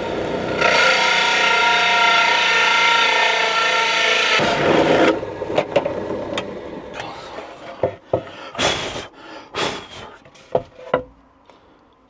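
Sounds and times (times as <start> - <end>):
pillar drill running: 0.0 - 7.1.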